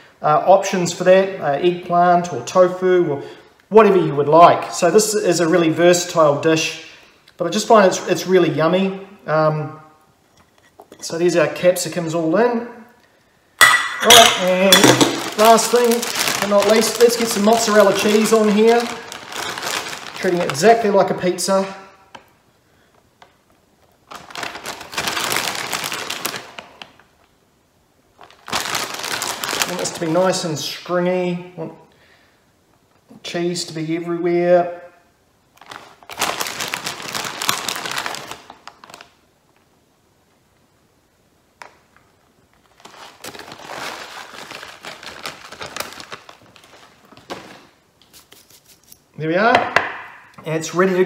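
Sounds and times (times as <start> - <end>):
plastic bag crinkling: 13.6 - 21.6, 23.8 - 27.0, 28.2 - 30.4, 35.5 - 39.2, 42.5 - 49.0.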